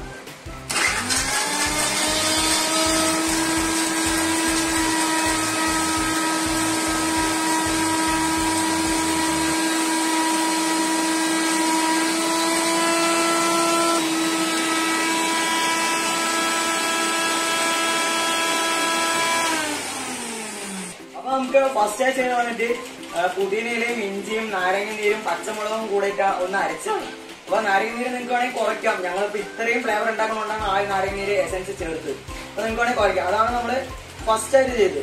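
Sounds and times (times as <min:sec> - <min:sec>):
electric mixer grinder whining: 0:00.0 - 0:21.1.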